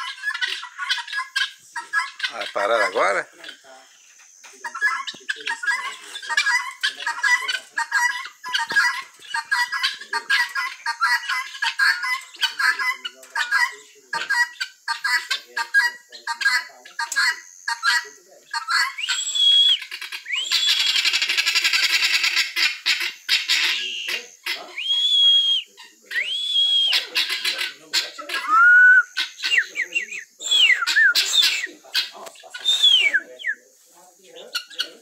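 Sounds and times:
guineafowl cackling: 0:00.0 - 0:35.0.

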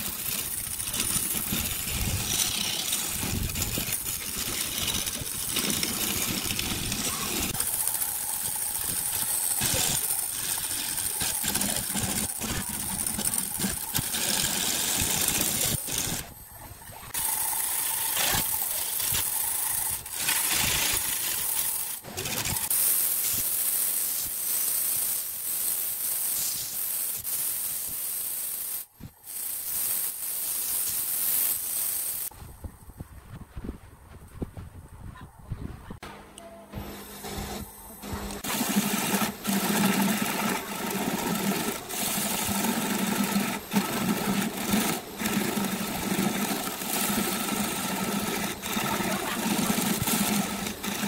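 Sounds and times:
sandpaper rubbing on turning wood: 0:00.0 - 0:16.2, 0:17.1 - 0:32.3, 0:38.4 - 0:51.0
lathe tool scraping wood: 0:00.0 - 0:16.3, 0:17.0 - 0:22.8, 0:36.8 - 0:51.0.

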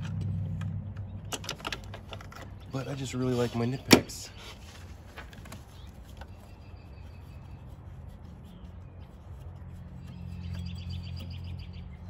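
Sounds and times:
bird chirping: 0:05.6 - 0:12.0.

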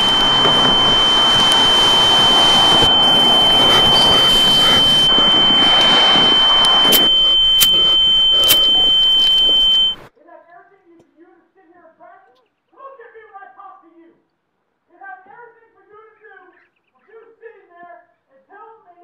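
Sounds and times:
high-pitched ringing tone: 0:00.0 - 0:10.1
sharp clicks: 0:00.0 - 0:10.1.

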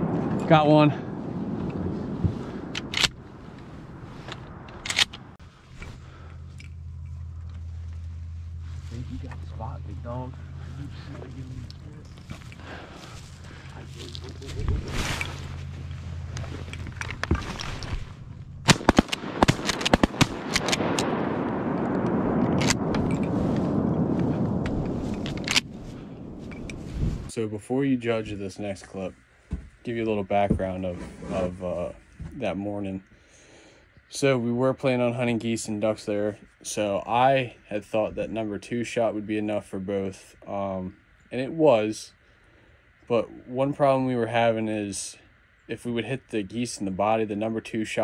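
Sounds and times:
dense rushing noise: 0:00.0 - 0:27.3
steady low hum: 0:00.0 - 0:48.0
shotgun cracks: 0:18.6 - 0:21.2.

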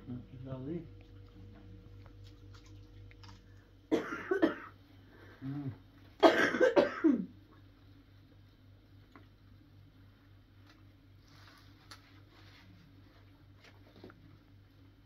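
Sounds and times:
person coughing: 0:03.9 - 0:04.8, 0:05.5 - 0:07.3.

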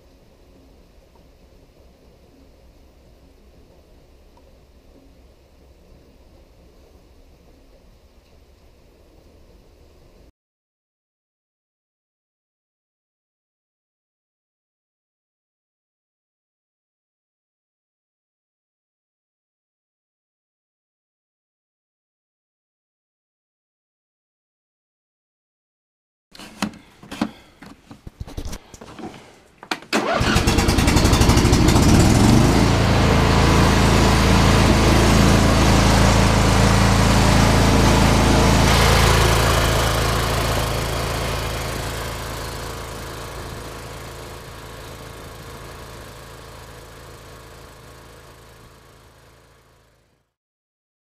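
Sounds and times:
engine starter cranking: 0:29.9 - 0:32.5
small engine running steadily: 0:30.2 - 0:50.4.

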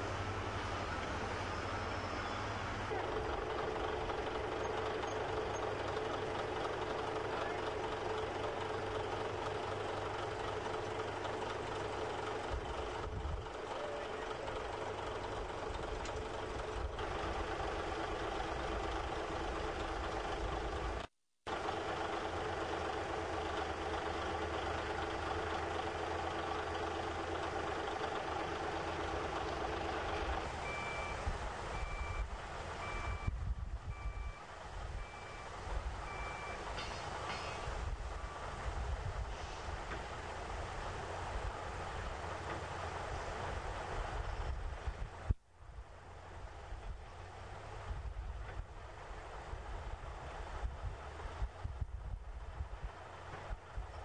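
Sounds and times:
diesel engines running: 0:00.0 - 0:54.0
back-up alarm beeping: 0:30.6 - 0:31.2, 0:31.8 - 0:37.6.

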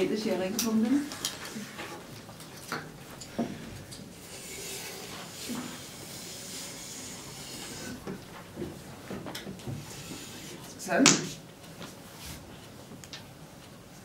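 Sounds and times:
chalk scraping on blackboard: 0:04.2 - 0:08.1, 0:09.7 - 0:10.8.

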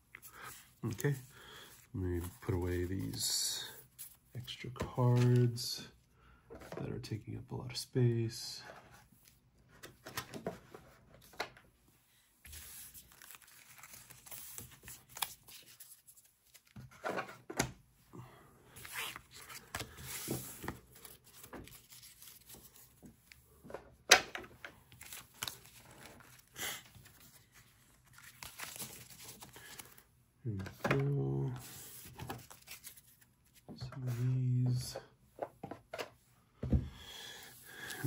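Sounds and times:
trading cards rustling and crinkling: 0:00.0 - 0:05.7, 0:12.5 - 0:17.5, 0:18.7 - 0:35.0, 0:37.4 - 0:38.0.

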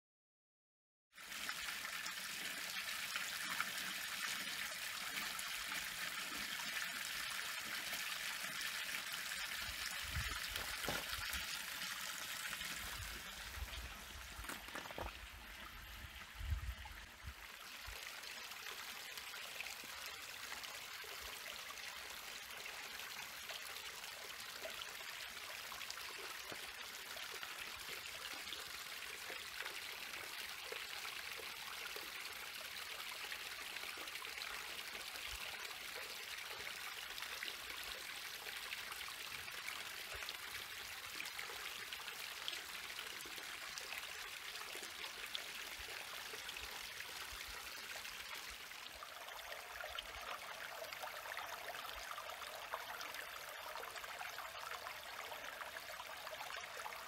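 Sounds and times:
waterfall splashing into pools: 0:01.2 - 0:15.8.

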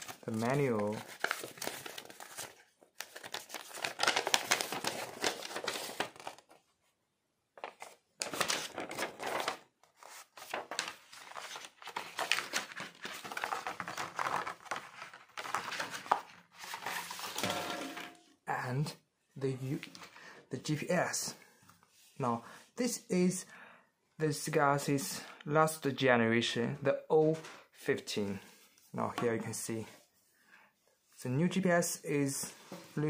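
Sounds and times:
plastic packaging crinkling: 0:00.0 - 0:06.5
paper rustling and crinkling: 0:00.0 - 0:06.7, 0:07.6 - 0:18.1.

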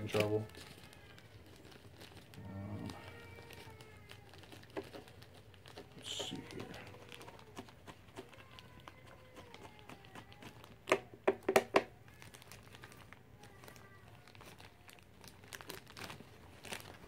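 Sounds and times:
plastic wrap crackling: 0:00.0 - 0:17.0
plastic wrap crinkling: 0:00.0 - 0:17.0.

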